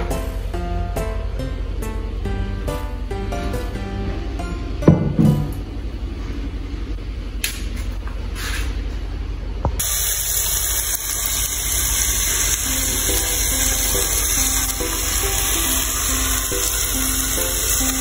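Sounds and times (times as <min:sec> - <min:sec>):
soft background music: 0:00.0 - 0:05.8, 0:11.2 - 0:18.0
greens sizzling in oil: 0:09.8 - 0:18.0.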